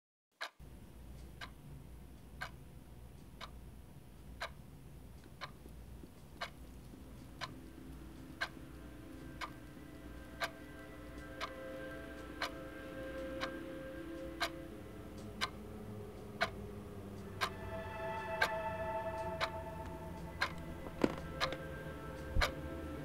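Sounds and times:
clock ticking: 0.4s - 22.6s
low steady hum: 0.6s - 23.0s
faint sustained tones: 7.0s - 23.0s.

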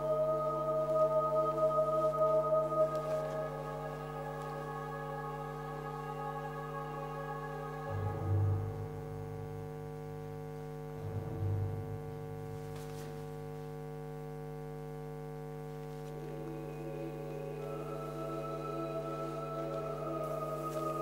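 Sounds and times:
ambient music drone: 0.0s - 9.8s, 16.1s - 21.0s.

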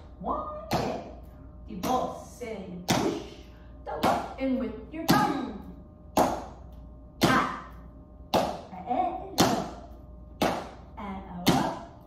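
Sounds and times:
body percussion strikes: 0.5s - 4.4s, 5.0s - 12.0s.

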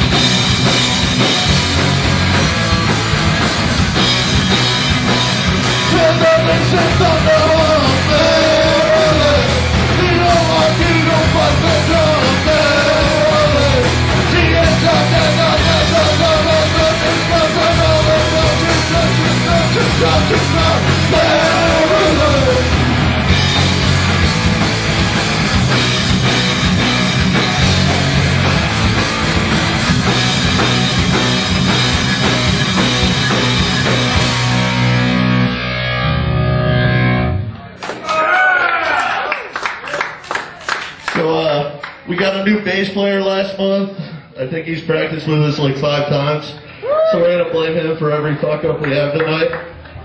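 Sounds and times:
electric guitar: 0.0s - 37.7s
bass guitar: 0.0s - 38.0s
drums: 0.0s - 39.1s
shouted vocals: 5.9s - 22.8s, 38.0s - 39.5s, 46.8s - 47.3s.

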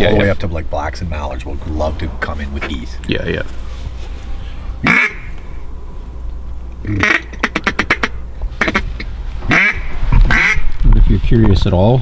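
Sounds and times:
duck call quacks: 4.8s - 5.4s, 6.8s - 10.6s.

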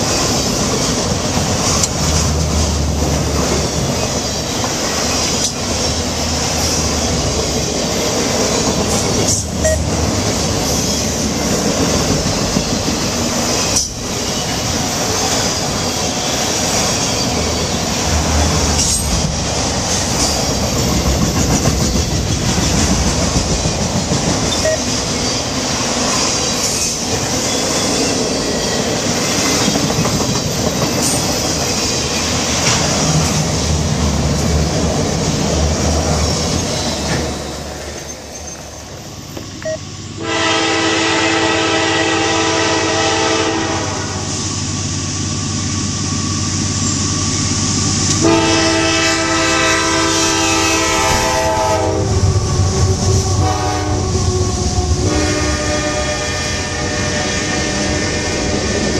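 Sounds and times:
train wheels clacking on rails: 0.0s - 38.7s
diesel locomotive hum: 0.0s - 58.9s
locomotive air horn blasts: 40.2s - 44.3s, 48.2s - 52.2s, 53.1s - 54.3s, 55.0s - 58.9s.

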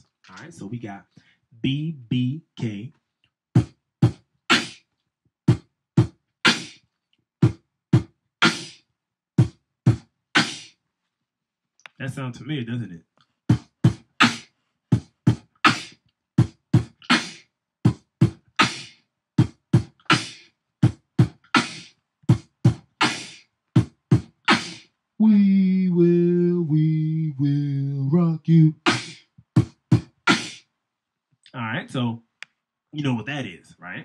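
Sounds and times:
beatboxing into a microphone: 1.6s - 2.9s, 3.6s - 4.8s, 6.5s - 6.8s, 8.4s - 8.8s, 9.4s - 10.7s, 13.5s - 14.4s, 15.0s - 30.6s
person humming a tune: 25.2s - 29.1s.

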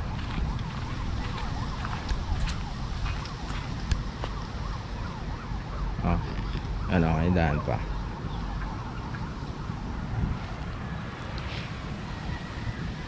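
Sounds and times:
footsteps on dirt track: 0.0s - 4.5s
wind rumbling on microphone: 0.0s - 13.0s.

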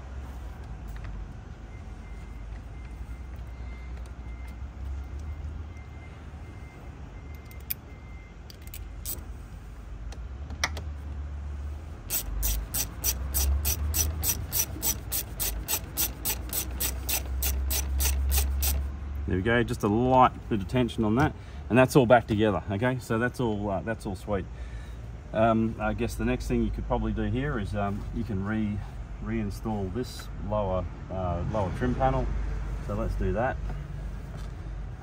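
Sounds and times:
ratcheting screwdriver clicking: 12.1s - 18.8s.

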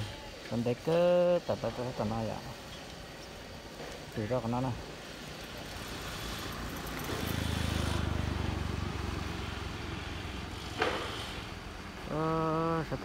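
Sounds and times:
outdoor background noise: 0.0s - 13.0s
vehicle engine hum passing: 4.9s - 12.2s.

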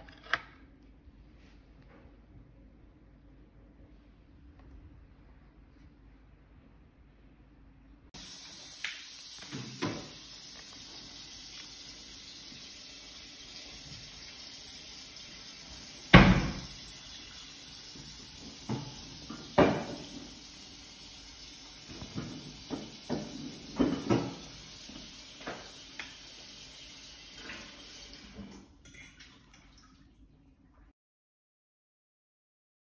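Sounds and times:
steady hiss: 8.2s - 27.0s.

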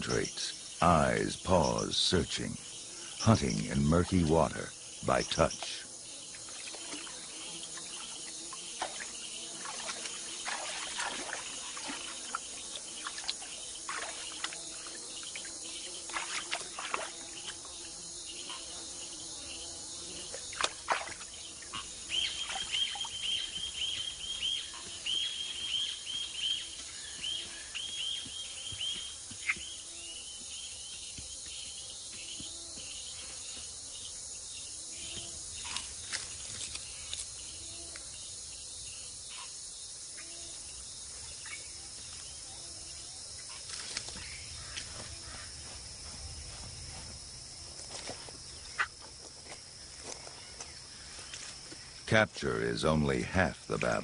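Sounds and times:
high insect drone: 0.0s - 54.0s
quick chirping calls: 20.6s - 29.7s.

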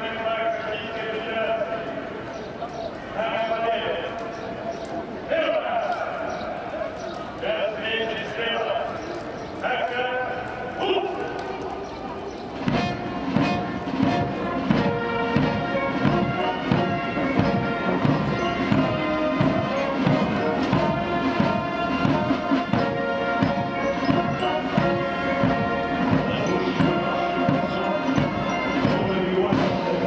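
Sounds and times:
brass band playing a march: 12.6s - 30.0s
bass drum beat: 12.7s - 29.8s.

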